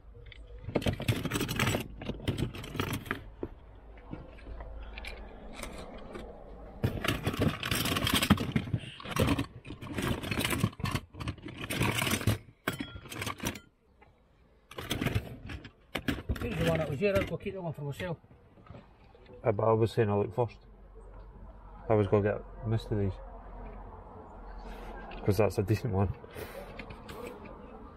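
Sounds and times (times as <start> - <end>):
plastic toys clattering in a box: 0.3 - 3.5, 4.1 - 13.7, 14.7 - 18.2.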